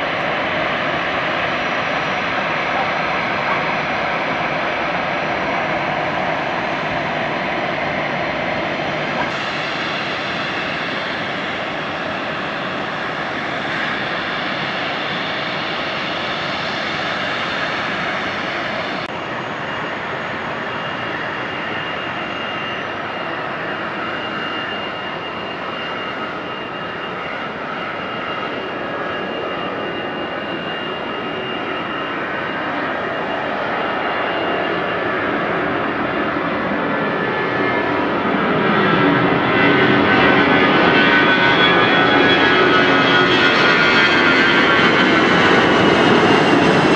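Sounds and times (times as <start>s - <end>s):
jet engines roaring: 0.0s - 46.9s.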